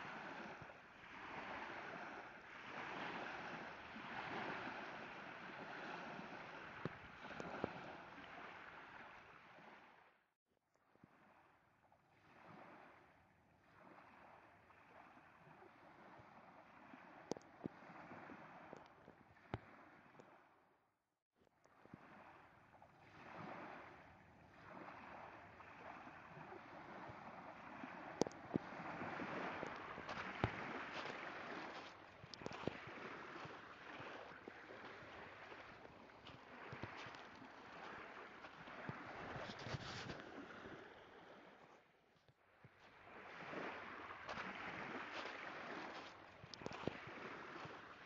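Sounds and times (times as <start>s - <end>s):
water washing in waves: 0.0s - 10.0s, 21.8s - 41.8s, 43.0s - 48.0s.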